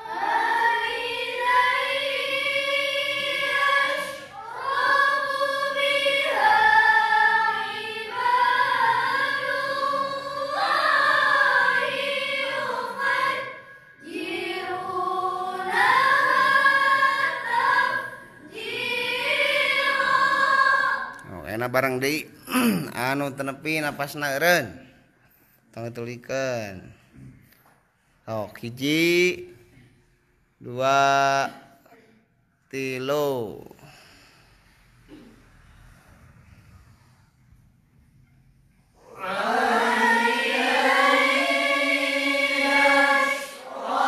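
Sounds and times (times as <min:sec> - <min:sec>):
women reciting melodically together: 0:00.0 - 0:21.9, 0:37.9 - 0:44.0.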